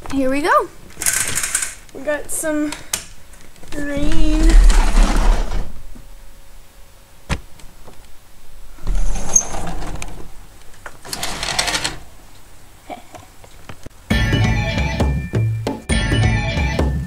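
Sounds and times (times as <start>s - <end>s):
microphone rustling and scraping: 3.7s - 6.1s
deep rumble: 3.8s - 6.2s.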